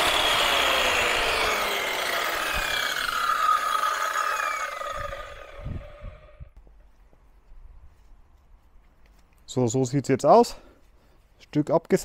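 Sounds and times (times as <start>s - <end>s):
angle grinder spinning down: 0.0s - 6.5s.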